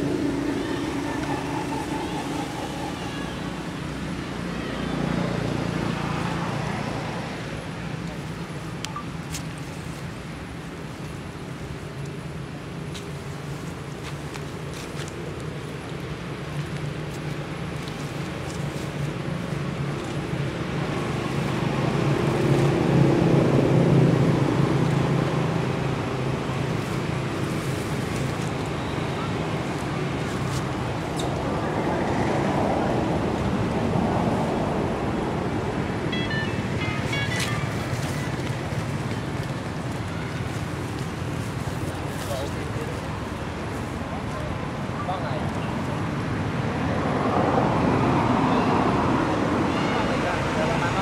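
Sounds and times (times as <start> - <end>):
vehicle engine passing: 0.0 - 7.5
engine humming: 0.0 - 44.7
outdoor background noise: 0.0 - 51.0
traffic noise: 0.0 - 51.0.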